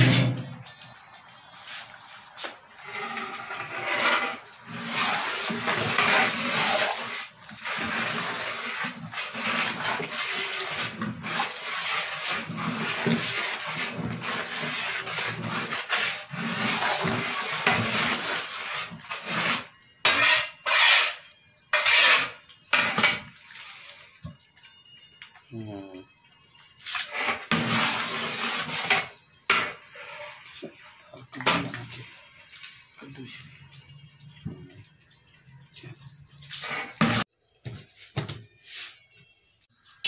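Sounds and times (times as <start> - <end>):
metal ladle scraping a pot: 0.0 - 0.6, 2.8 - 24.0, 26.9 - 30.8, 36.0 - 37.3.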